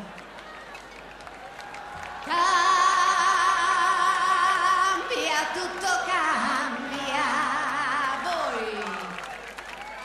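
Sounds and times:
woman singing: 2.2s - 9.2s.

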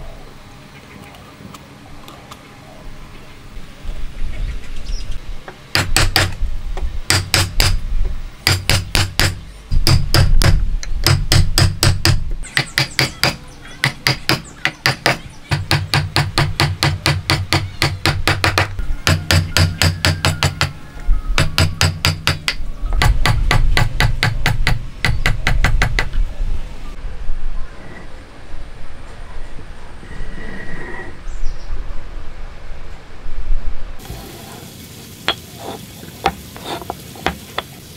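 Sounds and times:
hammer striking chisel into wood: 5.7s - 6.4s, 7.1s - 7.8s, 8.4s - 20.8s, 21.4s - 26.1s.

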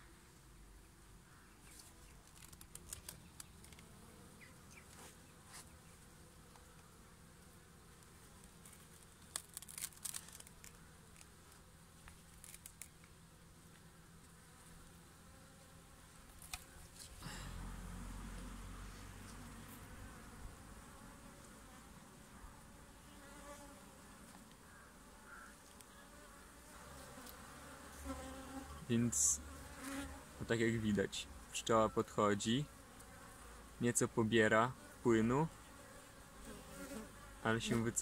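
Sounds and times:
bees buzzing: 13.4s - 38.0s.

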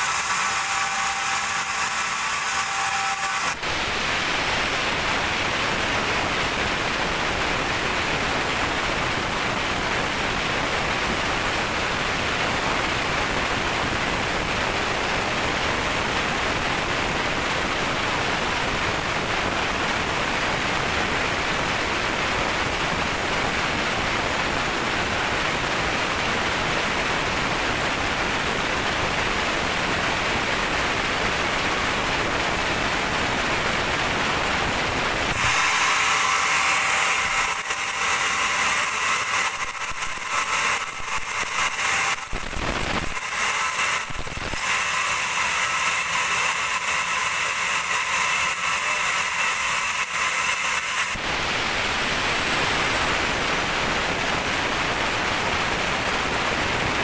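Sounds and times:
band saw cutting log: 0.0s - 6.3s, 35.2s - 54.2s.

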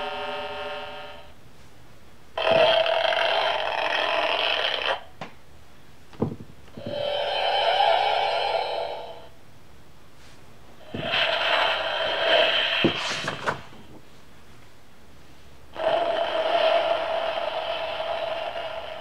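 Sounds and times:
page turning scrape: 12.8s - 14.0s.

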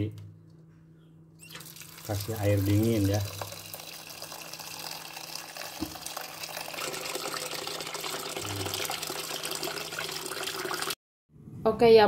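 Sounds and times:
tap water pouring into metal pot: 1.4s - 11.0s.

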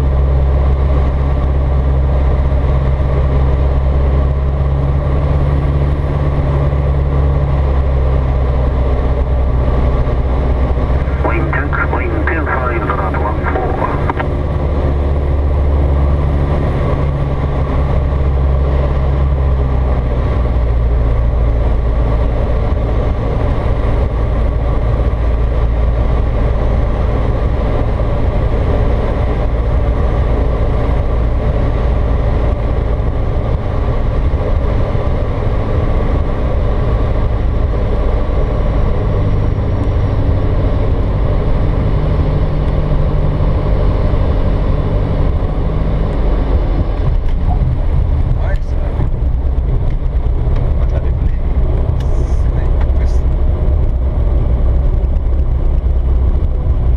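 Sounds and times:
propeller aircraft engine droning: 0.0s - 56.9s
airflow noise: 10.8s - 14.7s.

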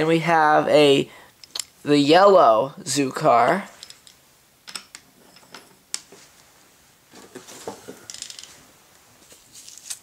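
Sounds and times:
small knocks and handling noise: 7.1s - 8.6s.

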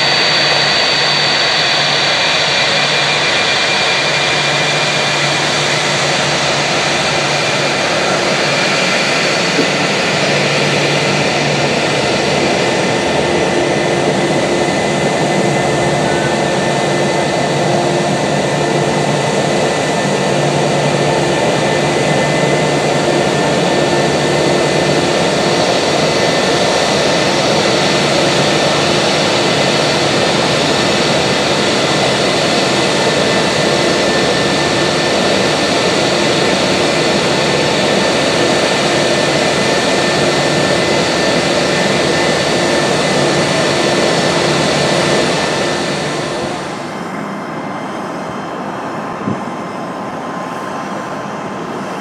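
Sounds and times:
jet engines running: 0.0s - 52.0s.

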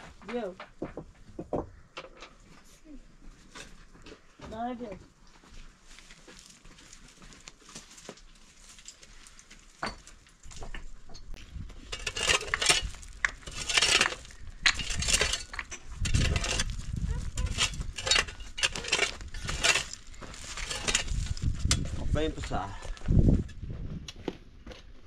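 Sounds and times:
metal clinking on stone: 9.8s - 21.4s
shovel digging gravelly ground: 11.3s - 23.6s.

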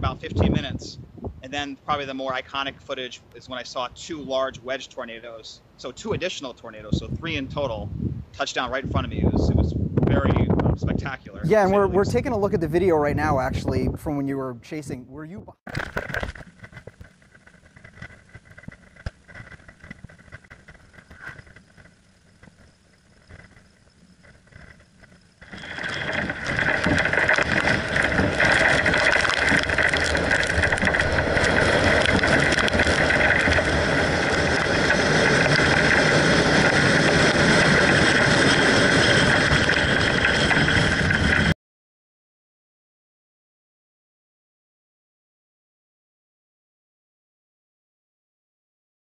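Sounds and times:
car driving on wet road: 25.5s - 41.4s.

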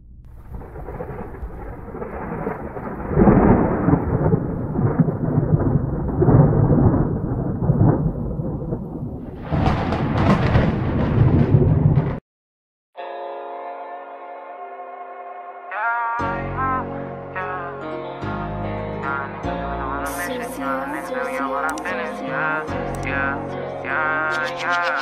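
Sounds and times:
rolling thunder: 0.2s - 12.2s
steady rain: 0.4s - 9.8s.

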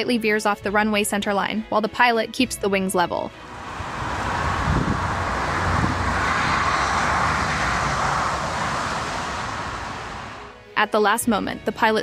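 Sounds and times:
jet airliner engines rushing: 3.4s - 10.6s.

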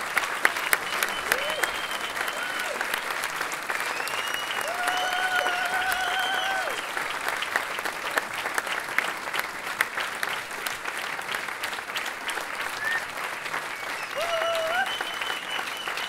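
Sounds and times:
audience applauding: 0.0s - 16.0s
crowd cheering: 0.0s - 16.0s
whistles: 0.5s - 2.8s, 3.7s - 6.9s, 12.7s - 16.0s.

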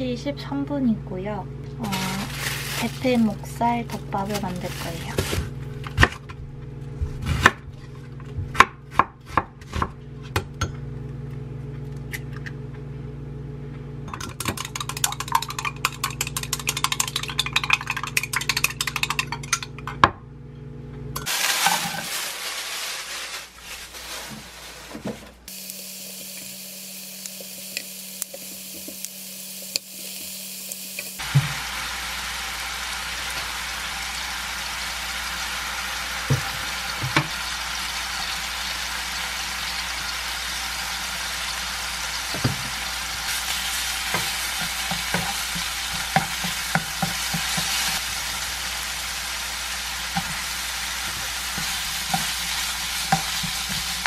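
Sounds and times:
knife chopping onion on board: 7.2s - 7.6s, 8.5s - 10.5s
eggs beaten in glass cup: 14.1s - 20.0s
meat sizzling in frying pan: 21.3s - 23.6s, 25.5s - 54.0s.

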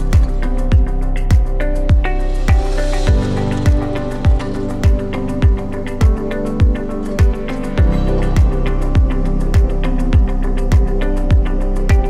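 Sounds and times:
deep kick drum: 0.0s - 12.0s.

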